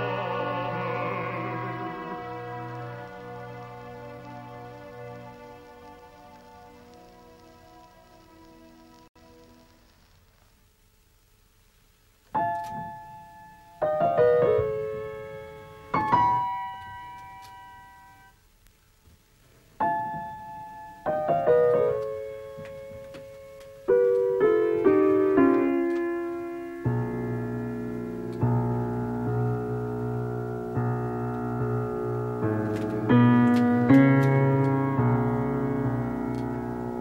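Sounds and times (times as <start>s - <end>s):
slow solo piano chords: 12.3s - 18.3s, 19.8s - 37.0s.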